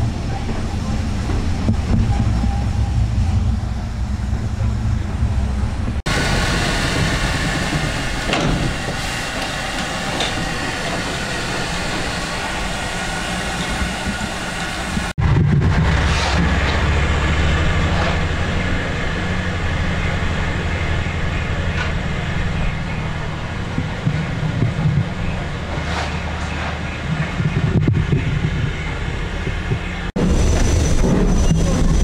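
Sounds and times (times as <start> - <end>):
steady low rumble: 0.0 - 8.2, 13.9 - 32.0
steam hissing: 6.1 - 15.1.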